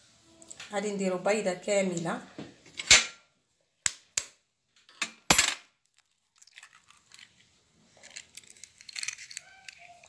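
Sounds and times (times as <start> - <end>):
eggshell rustling: 5.9 - 10.0.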